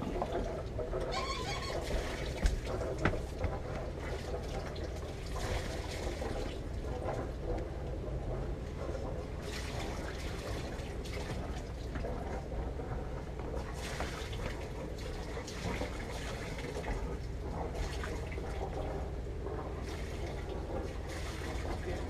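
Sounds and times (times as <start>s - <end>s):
boat engine rumbling: 0.0s - 22.0s
water splashing and gurgling: 0.0s - 22.0s.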